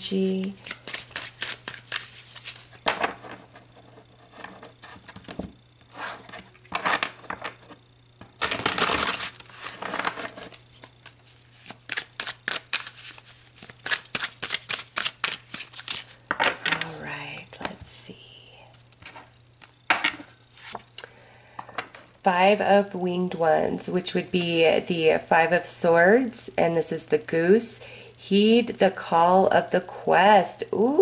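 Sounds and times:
cards shuffling: 0.0 - 2.9, 8.3 - 16.2, 18.7 - 19.8, 20.5 - 21.0.

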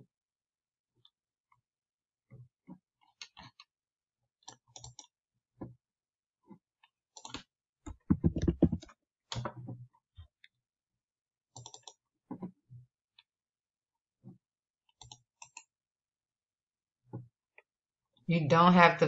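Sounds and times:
keyboard typing: 7.2 - 8.9
computer mouse clicking: 11.6 - 12.0, 15.0 - 15.7.

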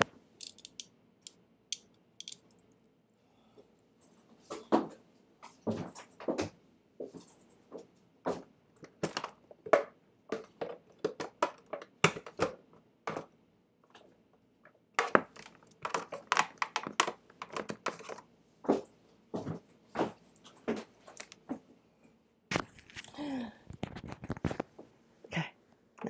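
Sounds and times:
clicks and clatter of plastic connectors: 0.0 - 2.9, 14.6 - 18.2, 21.1 - 21.4, 22.5 - 24.8.

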